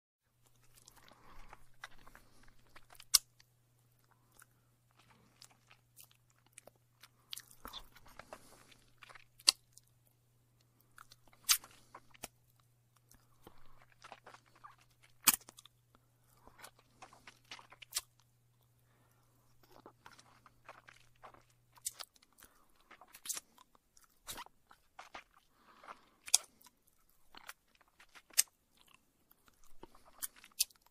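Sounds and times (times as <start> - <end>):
mouth sucking and smacking: 11.3 - 12.3.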